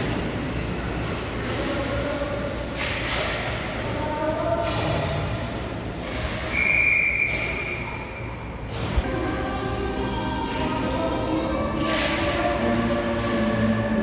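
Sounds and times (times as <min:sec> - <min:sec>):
background noise: 0:00.0 - 0:14.0.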